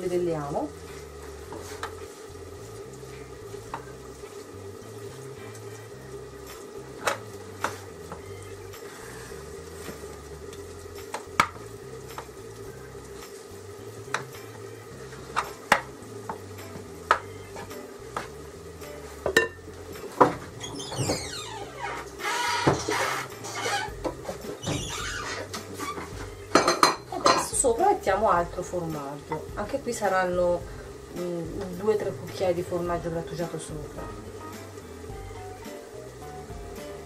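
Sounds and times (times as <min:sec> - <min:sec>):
wooden spoon scraping rice in pan: 0:01.5 - 0:02.2.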